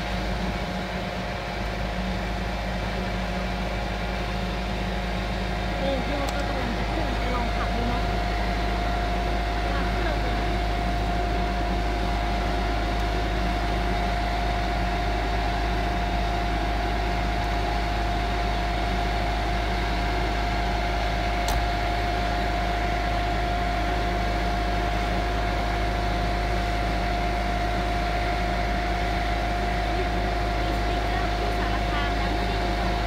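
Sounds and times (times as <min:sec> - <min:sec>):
constant whine: 0:00.0 - 0:33.0
excavator diesel engine idling: 0:00.0 - 0:33.0
sharp click: 0:21.4 - 0:21.7.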